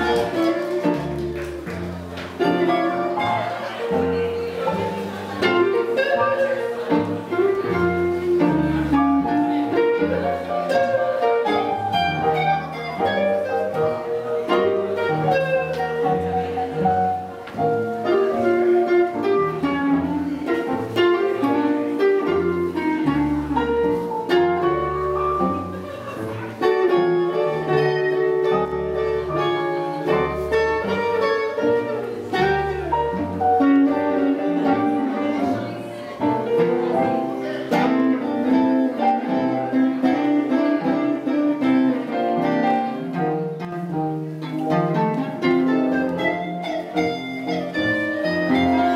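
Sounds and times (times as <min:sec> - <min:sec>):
swing band playing: 0:00.0 - 0:48.9.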